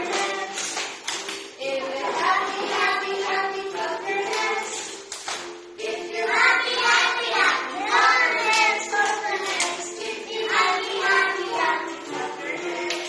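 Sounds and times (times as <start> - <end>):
hand claps: 0.0 - 3.0, 3.8 - 5.6, 7.9 - 13.0
children singing: 0.0 - 5.1, 5.7 - 13.0.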